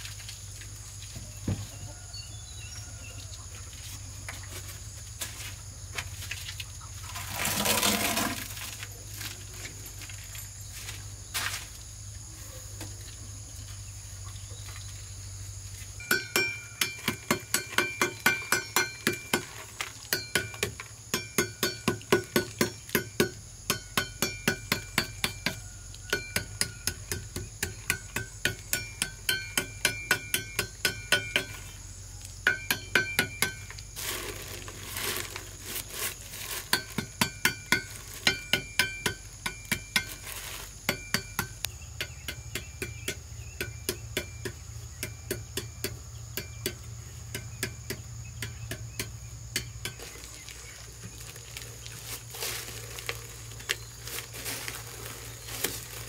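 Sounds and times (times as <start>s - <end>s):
insects buzzing: 0.0s - 56.0s
plastic liner rustling: 7.0s - 9.6s, 33.9s - 37.0s, 40.0s - 40.8s, 50.0s - 56.0s
hand tool tapping on stone pot: 16.0s - 31.7s, 32.4s - 33.9s, 36.7s - 40.2s, 40.8s - 50.3s.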